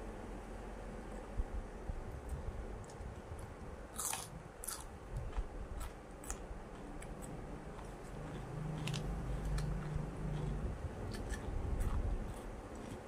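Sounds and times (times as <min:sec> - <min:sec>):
cucumber crunching: 0:03.9 - 0:13.0.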